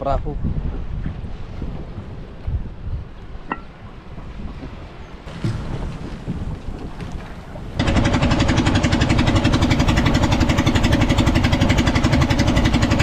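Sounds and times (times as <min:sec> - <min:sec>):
wind: 0:00.0 - 0:13.0
boat engine running: 0:07.0 - 0:13.0.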